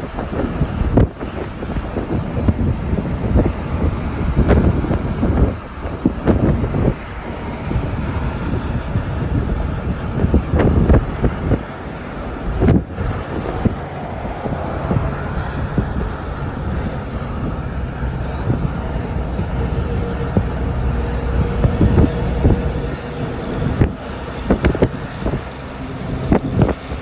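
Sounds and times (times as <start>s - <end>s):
car driving on highway: 0.0s - 27.0s
wind buffeting microphone: 0.0s - 27.0s.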